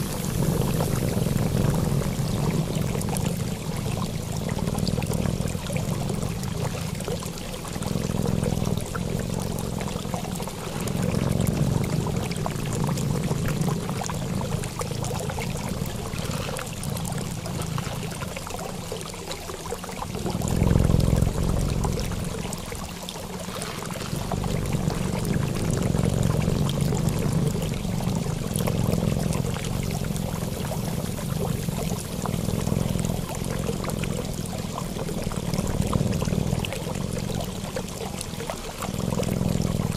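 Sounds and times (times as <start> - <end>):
rushing pouring water: 0.0 - 39.9.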